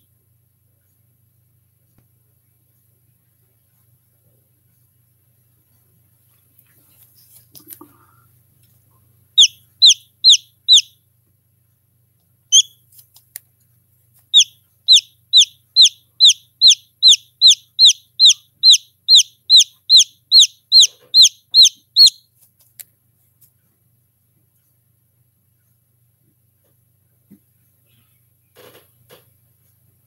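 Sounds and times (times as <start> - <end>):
chick peeping: 9.4 - 10.9, 14.3 - 22.2.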